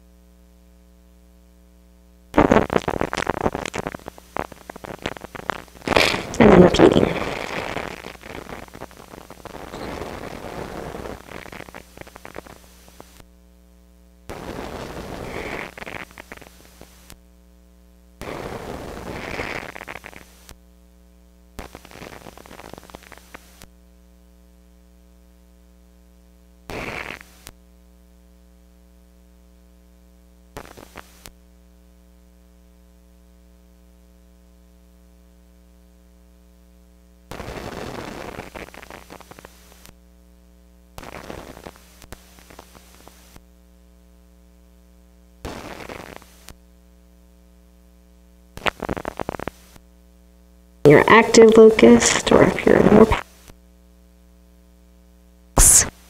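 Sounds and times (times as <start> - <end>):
faint electrical hum: 0.0 - 56.0
person breathing close to microphone: 5.9 - 6.4.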